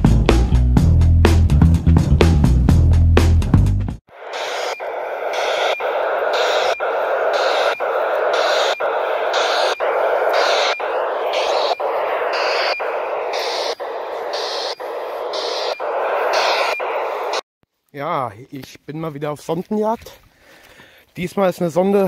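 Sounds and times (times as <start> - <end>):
telemetry clicks: 4.1 - 17.4
radio telemetry hiss: 4.1 - 17.5.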